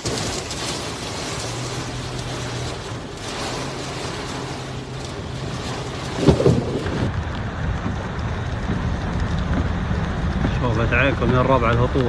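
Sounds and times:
floodwater rushing: 0.0 - 12.0
heavy rain and wind: 0.0 - 12.0
loud thump: 6.1 - 7.1.

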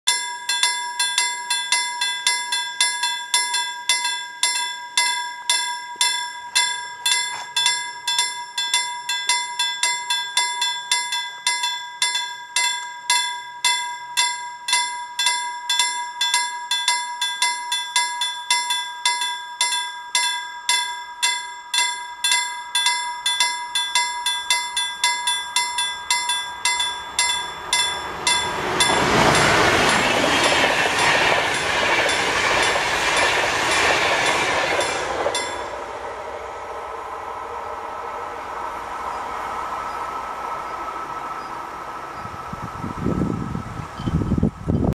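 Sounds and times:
level crossing warning bell: 0.1 - 44.4
train wheels on rails: 22.7 - 44.9.

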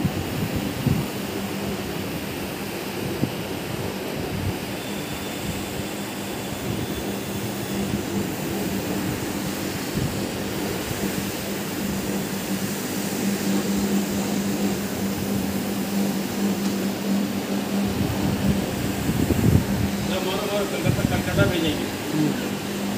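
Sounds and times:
floor machine motor hum: 4.9 - 22.9
brush scrubbing carpet hiss: 5.8 - 22.9.

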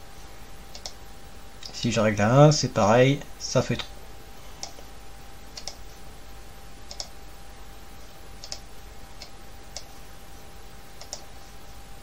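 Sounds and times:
faint steady hum: 0.0 - 12.0
computer mouse clicking: 0.7 - 1.0, 4.6 - 4.8, 5.5 - 5.8, 6.9 - 7.2, 8.4 - 9.9, 11.0 - 11.3.

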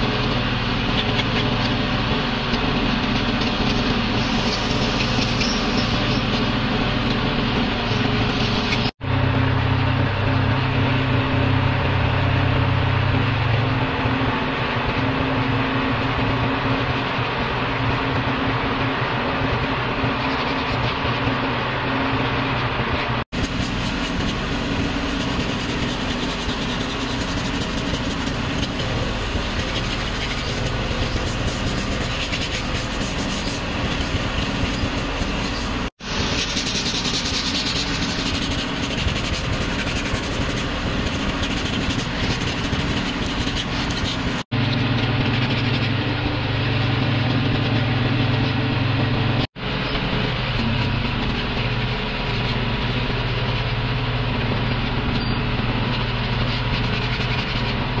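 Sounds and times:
low hum: 0.0 - 58.0
machinery running: 0.0 - 58.0.

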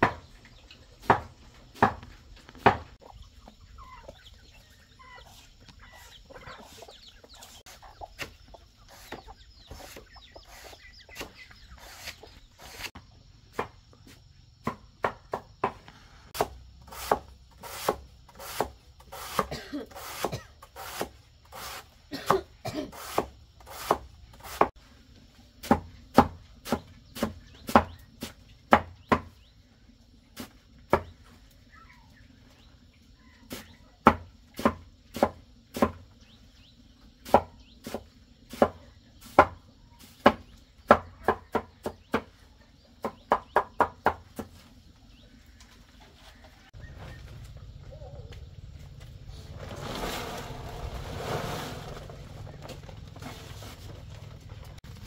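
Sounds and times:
chopping wood knocks: 0.0 - 0.3, 1.0 - 2.9
chickens clucking: 0.0 - 12.9, 25.7 - 49.9.

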